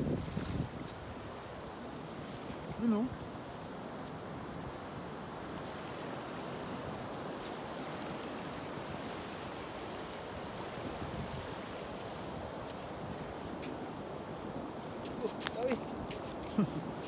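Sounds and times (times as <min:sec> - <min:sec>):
rushing water: 0:00.0 - 0:17.0.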